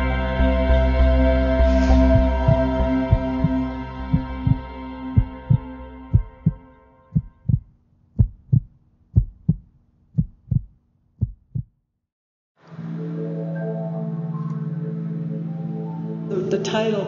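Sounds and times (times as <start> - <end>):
ambient music drone: 0.0 - 7.4, 12.6 - 17.0
heartbeat thumps: 2.1 - 11.8.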